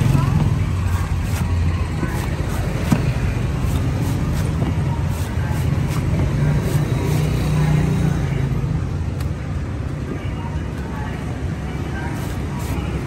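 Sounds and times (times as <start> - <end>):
low rumble of traffic: 0.0 - 13.0
cleaver chopping coconut husk: 0.8 - 7.2.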